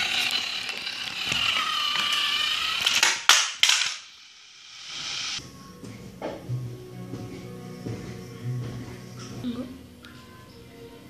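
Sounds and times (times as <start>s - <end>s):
toy train motor whining: 0.0s - 5.4s.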